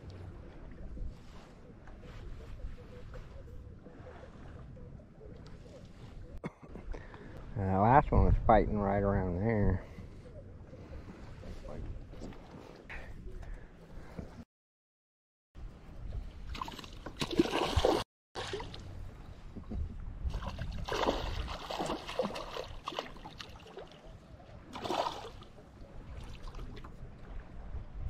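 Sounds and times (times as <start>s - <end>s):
fish thrashing and splashing: 16.6s - 18.7s, 20.3s - 24.0s.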